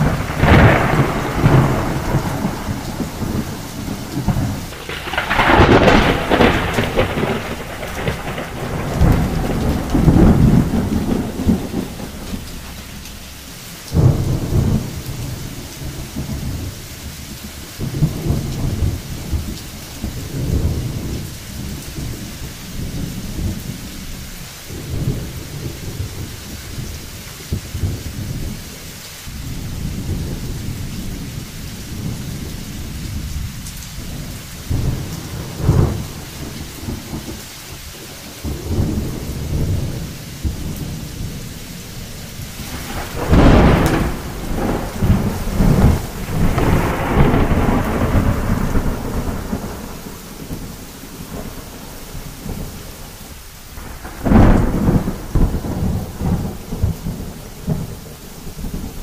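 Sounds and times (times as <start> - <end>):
thunderclap: 0.0 - 16.7, 31.9 - 41.8, 42.4 - 52.7, 53.8 - 59.0
heavy rain pouring: 0.0 - 59.0.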